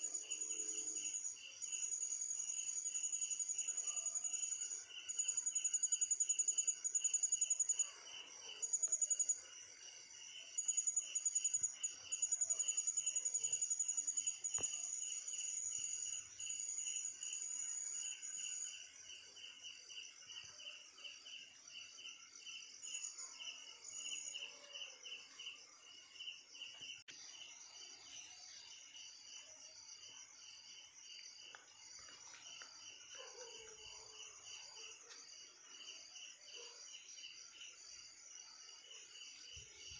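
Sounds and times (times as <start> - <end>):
crickets trilling: 10.3 - 18.8.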